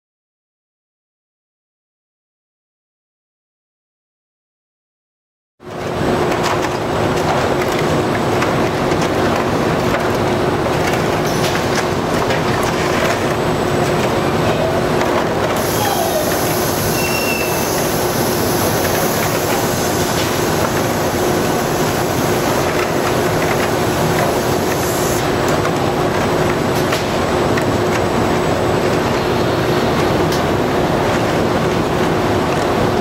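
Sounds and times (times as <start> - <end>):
machinery hum: 6.8 - 33.0.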